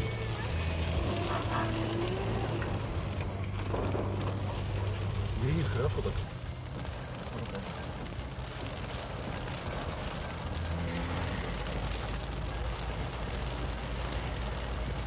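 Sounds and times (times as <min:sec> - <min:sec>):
engine hum: 0:00.0 - 0:15.0
rain on car roof: 0:00.0 - 0:15.0
tyres on wet road: 0:00.0 - 0:15.0.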